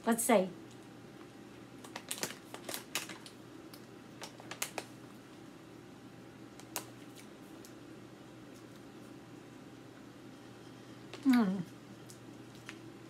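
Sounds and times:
plastic bag crinkling: 0:01.8 - 0:05.0.

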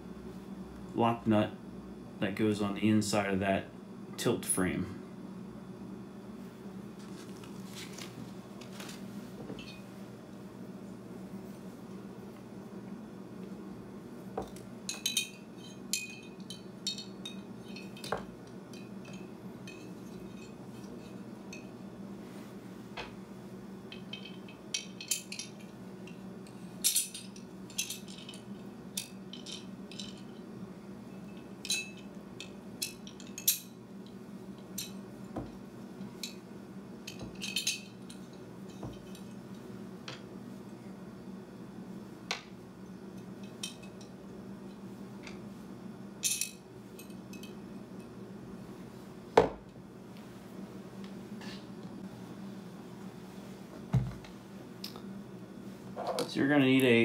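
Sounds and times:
steady low hum: 0:00.0 - 0:57.0
small metal parts clinking: 0:26.8 - 0:30.4, 0:37.1 - 0:39.2, 0:46.2 - 0:47.5.

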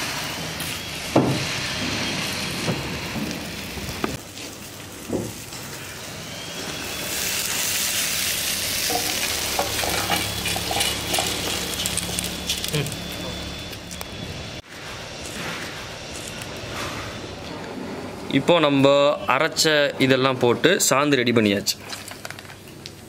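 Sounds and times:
spices sizzling in a pan: 0:03.4 - 0:13.5.

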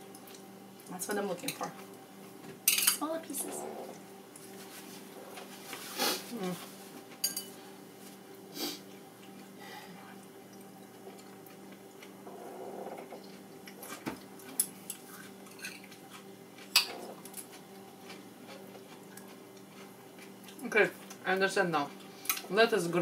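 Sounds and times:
steady low hum: 0:00.0 - 0:23.0
chopsticks clinking on bowls: 0:07.2 - 0:07.5.

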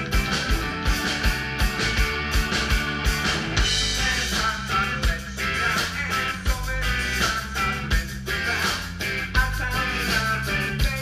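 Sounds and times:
live rock band playing: 0:00.0 - 0:11.0.

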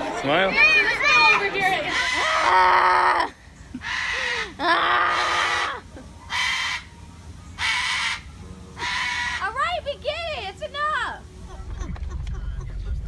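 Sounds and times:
cockatoo screeching: 0:01.8 - 0:06.9, 0:07.6 - 0:09.6.

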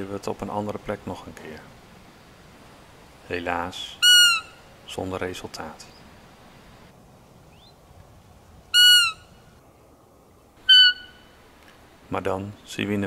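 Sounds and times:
high whistling deer call squeaks: 0:03.8 - 0:04.7, 0:08.7 - 0:09.4, 0:10.6 - 0:11.4.

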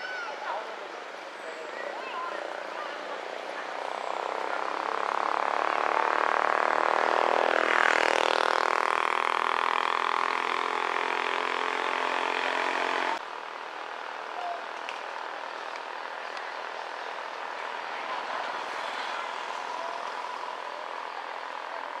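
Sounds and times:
vehicle engine passing by: 0:02.4 - 0:13.2.

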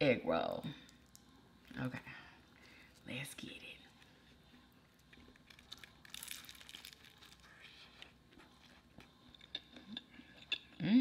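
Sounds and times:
crispy wrapper crunching when bitten: 0:05.1 - 0:08.7.

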